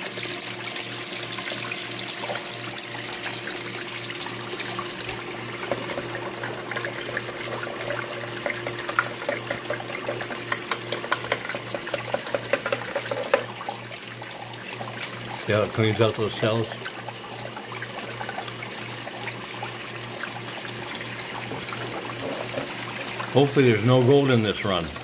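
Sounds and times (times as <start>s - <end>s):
water rushing down a sluice: 0.0s - 25.0s
small ticks and spatters: 5.6s - 13.6s.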